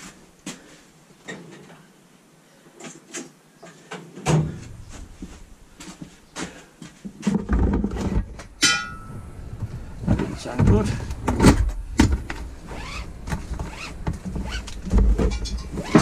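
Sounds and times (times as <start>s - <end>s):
drawer opening and closing: 9.5s - 16.0s.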